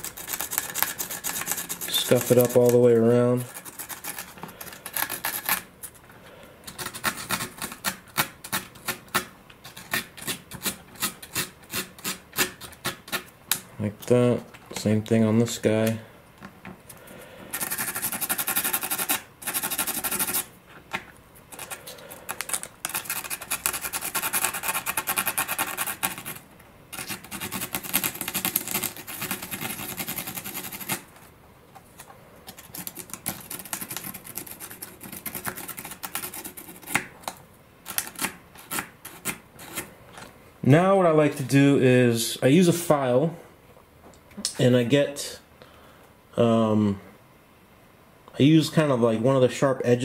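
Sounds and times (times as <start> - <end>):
sandpaper rasping on rod: 0.0 - 5.6, 9.7 - 13.3, 17.6 - 20.5, 22.9 - 26.4, 27.0 - 31.1.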